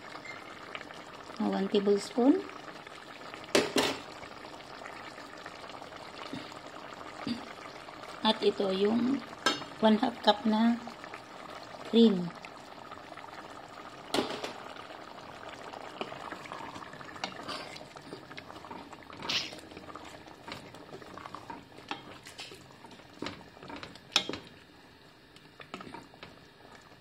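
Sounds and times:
stew bubbling in a pot: 0.0s - 27.0s
wooden spoon stirring: 15.9s - 24.7s, 25.6s - 26.4s.

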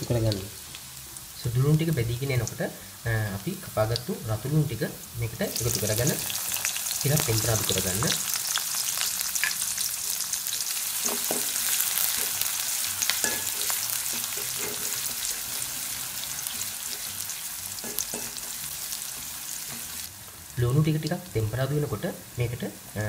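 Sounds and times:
onions sizzling in oil: 0.0s - 23.0s
spoon scraping a pan: 5.6s - 20.1s.

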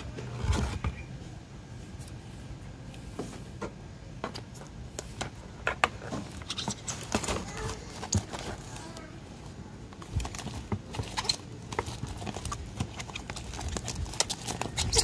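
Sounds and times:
plastic bag rustling: 6.0s - 15.0s.

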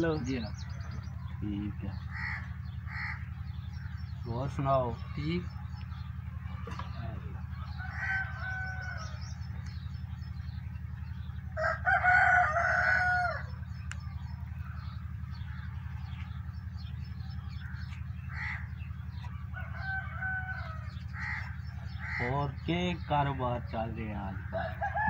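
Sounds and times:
steady low hum: 0.0s - 25.0s
rooster crowing: 6.7s - 9.4s, 11.6s - 13.6s, 19.4s - 21.5s, 24.5s - 25.0s.

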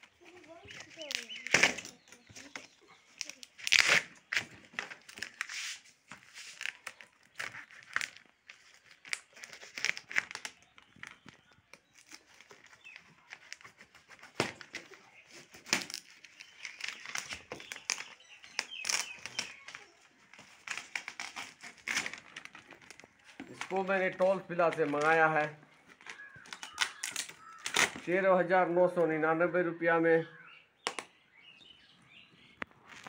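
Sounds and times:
plastic film crinkling: 0.0s - 28.2s, 32.6s - 33.0s
plastic film snapping: 0.8s - 2.5s, 3.2s - 5.5s, 6.2s - 28.1s.

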